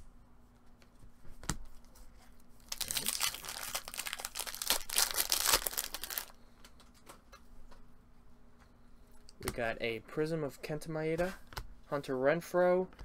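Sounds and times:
foil wrapper tearing and crinkling: 0:02.6 - 0:06.3.

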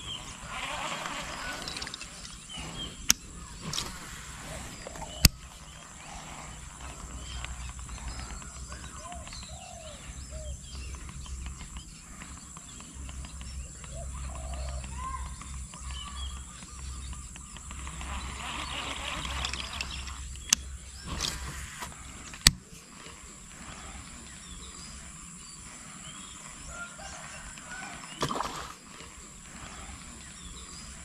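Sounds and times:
chirping and croaking animal calls: 0:00.0 - 0:31.0
sharp clicks: 0:10.8 - 0:22.7.

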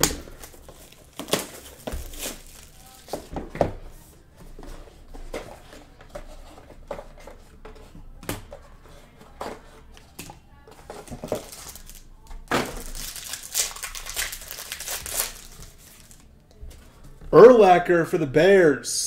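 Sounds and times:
cardboard boxes being handled: 0:00.1 - 0:11.9.

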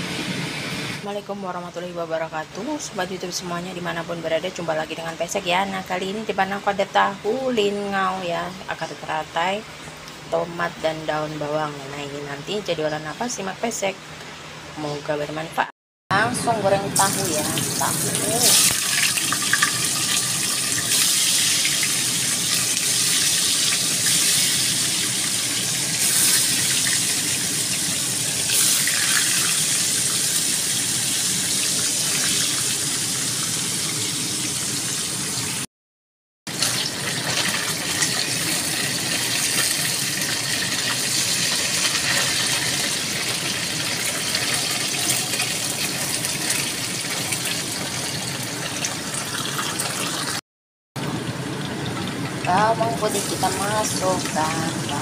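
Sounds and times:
tofu sizzling in hot oil: 0:17.3 - 0:35.6, 0:36.6 - 0:50.4.

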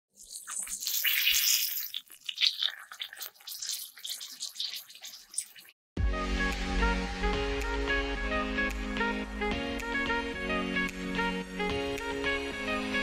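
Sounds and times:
meat sizzling in hot oil: 0:00.1 - 0:05.7.

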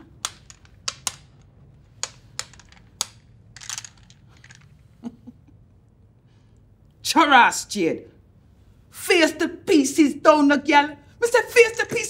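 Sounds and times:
domino tiles clicking on table: 0:00.0 - 0:04.8.

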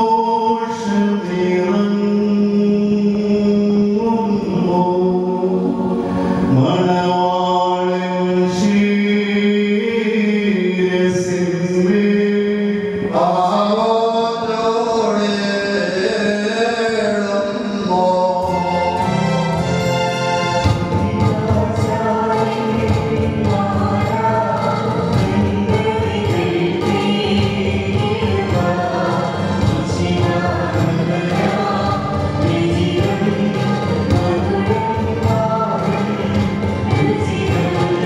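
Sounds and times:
liturgical chant over loudspeakers: 0:00.0 - 0:19.3, 0:21.0 - 0:38.0
voices joining in singing: 0:13.0 - 0:38.0.

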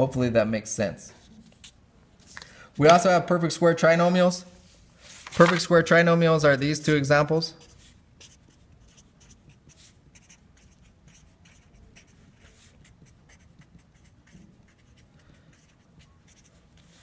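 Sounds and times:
marker scratching on paper: 0:07.5 - 0:17.0.

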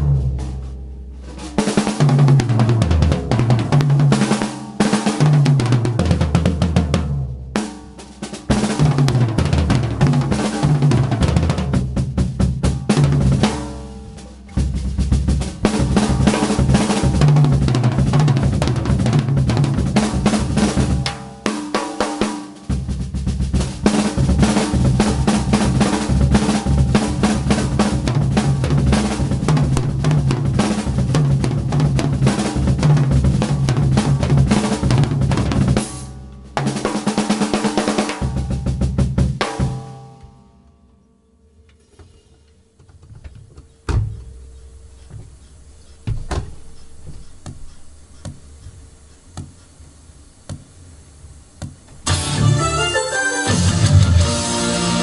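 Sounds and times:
drum kit played fast: 0:00.0 - 0:40.2, 0:43.9 - 0:55.0
light knocks: 0:42.8 - 0:44.4, 0:46.0 - 0:48.8.

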